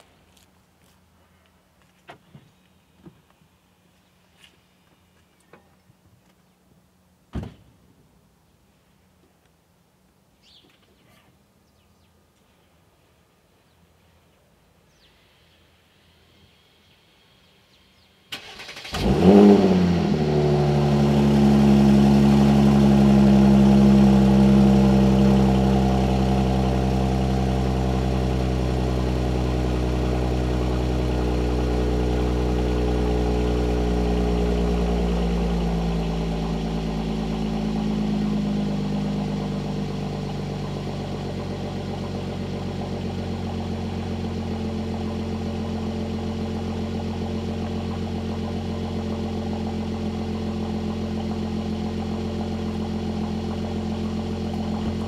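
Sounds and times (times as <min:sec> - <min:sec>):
car engine idling: 0:18.4 - 0:55.0.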